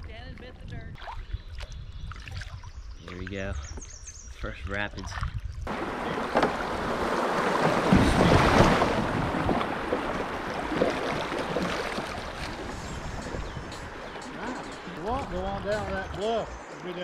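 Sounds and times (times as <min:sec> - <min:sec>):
water rushing and splashing: 0:05.0 - 0:17.0.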